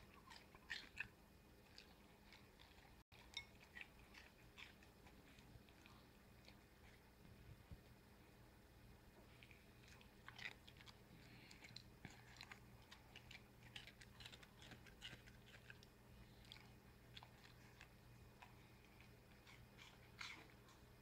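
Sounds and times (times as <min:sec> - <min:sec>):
dog crunching dry food: 0:09.8 - 0:20.9.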